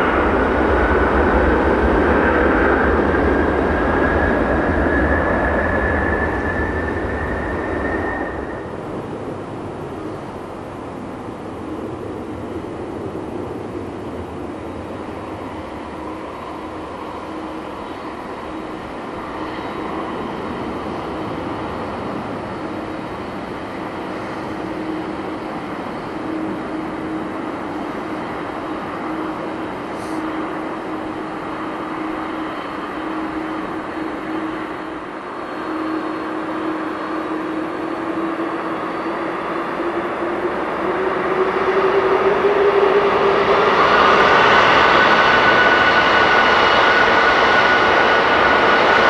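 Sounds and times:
jet engines rumbling: 0:00.0 - 0:49.0.

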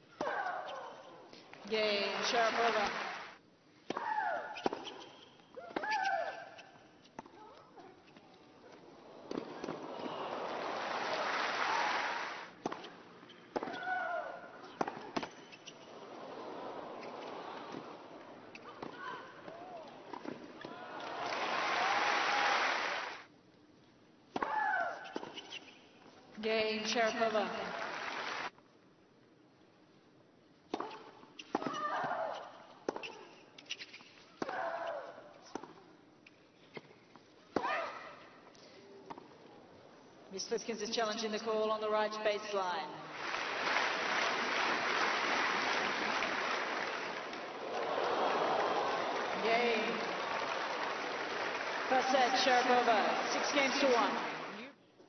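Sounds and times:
court noise: 0:01.6 - 0:23.3, 0:26.6 - 0:28.5, 0:43.0 - 0:54.8
crowd applauding and cheering: 0:02.1 - 0:03.4, 0:09.7 - 0:12.5, 0:20.7 - 0:23.3, 0:27.3 - 0:28.5, 0:43.1 - 0:54.6.

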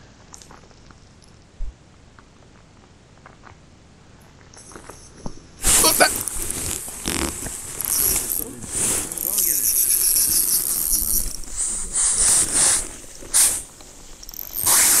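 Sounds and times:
jacket rustling against camera: 0:05.6 - 0:15.0
faint handling ticks: 0:05.7 - 0:13.6.

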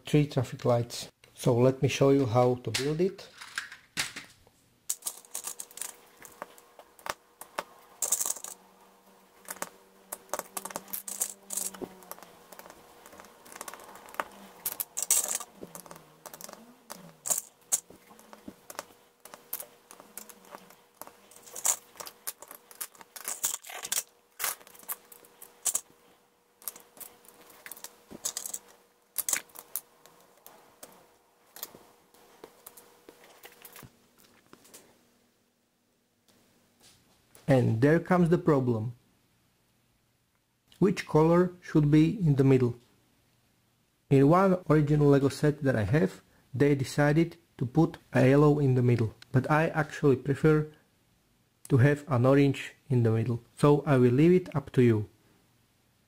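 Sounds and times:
faint steady hum: 0:00.0 - 0:56.0
plastic bricks clicking and rattling: 0:04.9 - 0:08.6, 0:09.5 - 0:25.9, 0:26.6 - 0:29.9.

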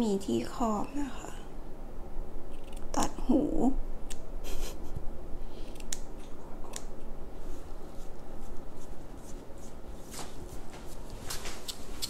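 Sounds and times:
hair and hands rustling: 0:07.3 - 0:12.0.

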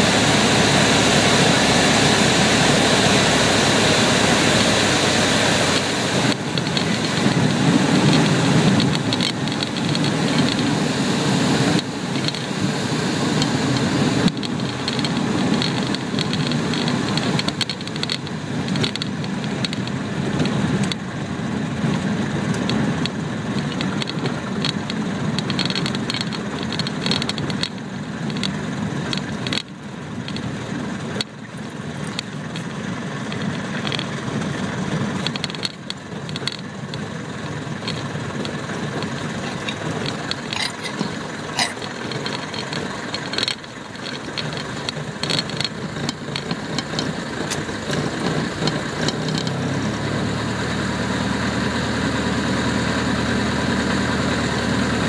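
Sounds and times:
propeller airplane engine: 0:00.0 - 0:55.0
knocks and rattles on dirt: 0:04.5 - 0:10.9, 0:13.3 - 0:21.0, 0:21.8 - 0:50.3.

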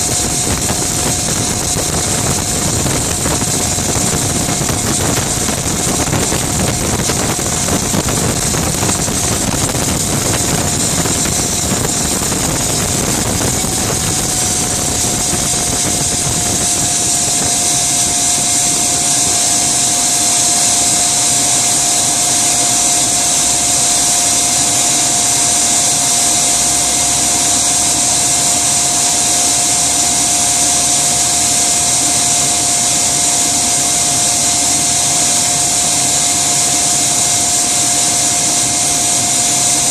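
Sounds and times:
low rumble: 0:00.0 - 0:17.9
gas turbine engine whine: 0:00.0 - 0:39.9
loud rushing hiss: 0:00.0 - 0:39.9.

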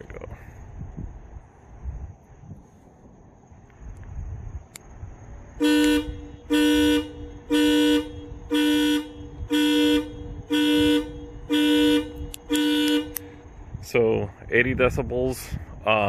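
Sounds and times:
twin car horns honking: 0:05.5 - 0:13.6.

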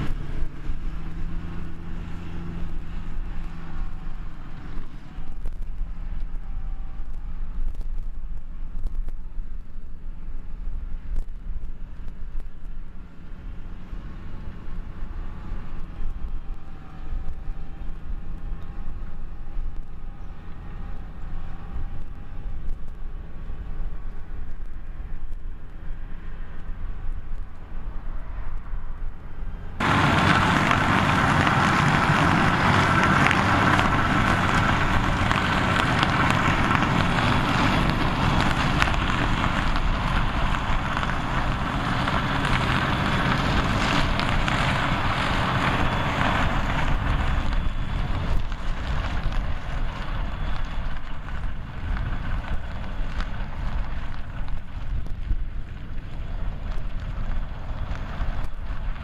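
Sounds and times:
manure spreader working: 0:00.0 - 0:07.8, 0:29.5 - 0:59.0
distant tractor engine drone: 0:00.0 - 0:59.0.

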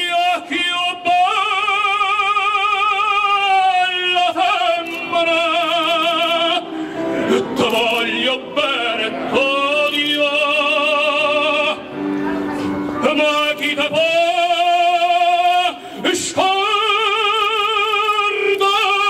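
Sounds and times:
man singing with vibrato: 0:00.0 - 0:12.0, 0:12.8 - 0:19.0
instrumental accompaniment: 0:04.4 - 0:15.5.

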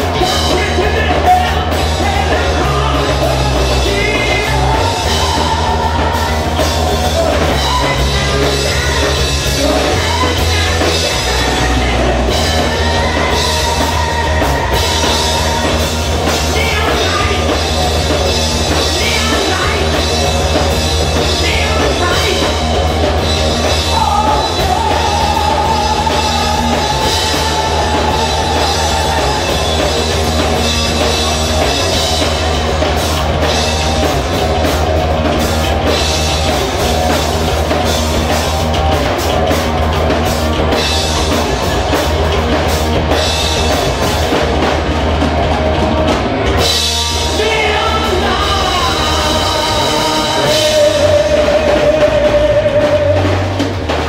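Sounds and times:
person singing into a microphone: 0:00.0 - 0:17.8, 0:18.7 - 0:20.4, 0:21.2 - 0:22.9, 0:23.6 - 0:30.8, 0:47.1 - 0:53.7
bass guitar: 0:00.0 - 0:54.0
drum kit: 0:00.0 - 0:54.0
electric guitars: 0:00.0 - 0:54.0.

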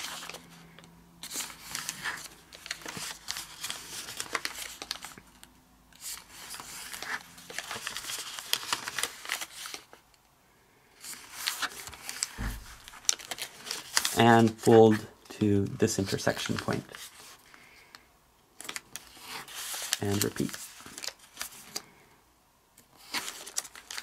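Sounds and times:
paper rustling and crinkling: 0:00.0 - 0:10.0, 0:11.0 - 0:15.2, 0:15.9 - 0:18.0, 0:18.6 - 0:22.0, 0:22.8 - 0:24.0
soft low thump: 0:12.4 - 0:12.8.

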